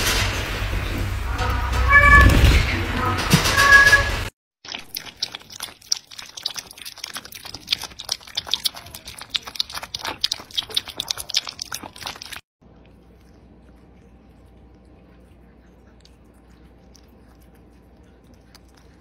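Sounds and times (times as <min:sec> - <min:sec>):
cat lapping liquid: 0:04.6 - 0:19.0.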